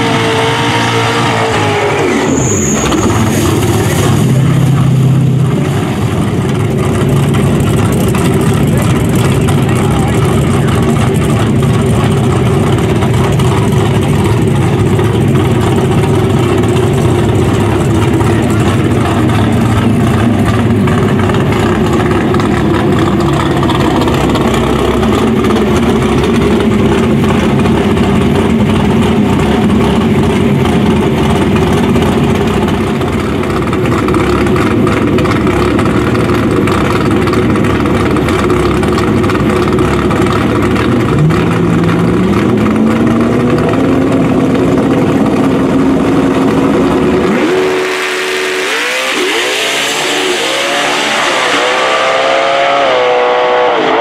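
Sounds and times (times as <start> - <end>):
engine revving high: 0.0 - 5.6, 41.0 - 54.0
race car engines running: 0.0 - 54.0.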